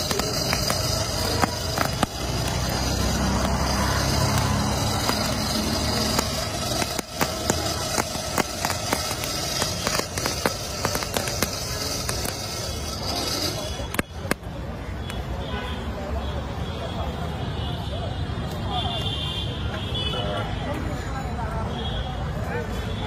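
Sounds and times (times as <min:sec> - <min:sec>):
blower fan humming: 0:00.0 - 0:14.0
crackles from burning coals: 0:00.0 - 0:15.5.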